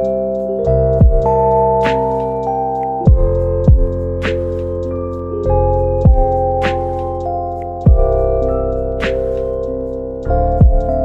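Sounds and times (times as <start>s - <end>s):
keyboard chords: 0.0s - 11.0s
deep booming bass hits: 3.1s - 4.0s, 7.9s - 8.2s.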